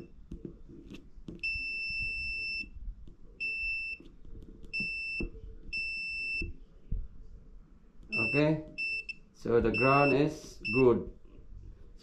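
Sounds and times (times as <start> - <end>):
multimeter continuity beeps: 1.4 - 2.8, 3.4 - 4.1, 4.7 - 6.6, 8.1 - 11.0.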